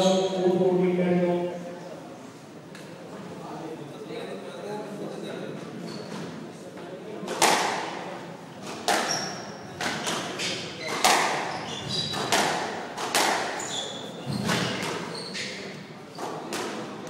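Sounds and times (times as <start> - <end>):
shoes squeaking on wooden floor: 5.8 - 6.3, 10.4 - 12.3, 13.6 - 16.4
squash ball hits echoing: 7.3 - 8.0, 8.7 - 15.1.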